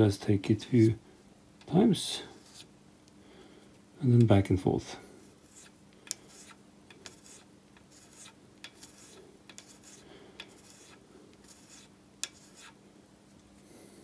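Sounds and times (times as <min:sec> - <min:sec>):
hand scraper scratching metal: 0:05.5 - 0:12.8.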